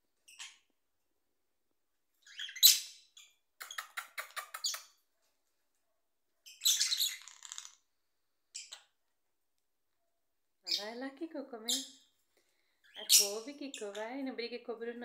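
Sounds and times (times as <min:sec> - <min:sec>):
parrots chirping: 0:00.2 - 0:00.7, 0:02.2 - 0:05.0, 0:06.4 - 0:07.9, 0:08.5 - 0:09.0, 0:11.6 - 0:14.2.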